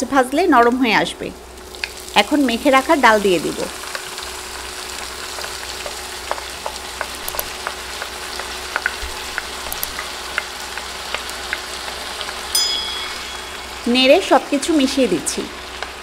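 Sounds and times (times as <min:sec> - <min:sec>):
oil sizzling in a frying pan: 0:01.4 - 0:16.0
crackles and pops: 0:01.7 - 0:02.2, 0:04.8 - 0:12.5.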